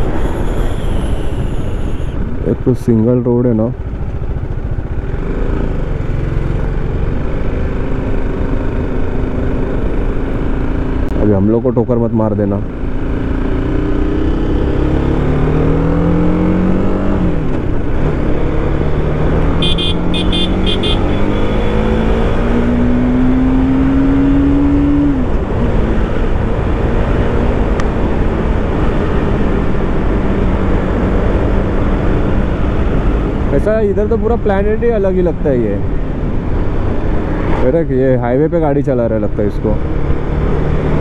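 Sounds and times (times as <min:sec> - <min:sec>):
motorcycle engine accelerating: 0:12.6 - 0:34.5.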